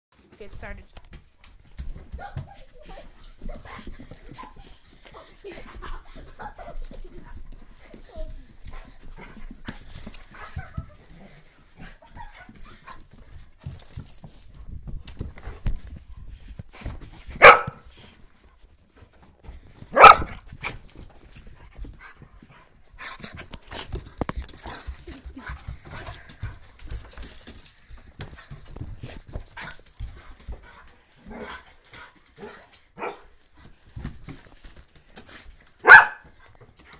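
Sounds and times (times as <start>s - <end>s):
dog barking: 17.4s - 17.8s, 19.9s - 20.4s, 33.0s - 33.3s, 35.8s - 36.2s.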